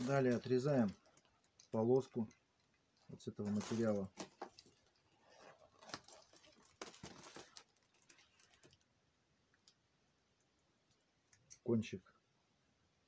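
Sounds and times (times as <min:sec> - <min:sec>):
plastic film crinkling: 0:00.0 - 0:08.9.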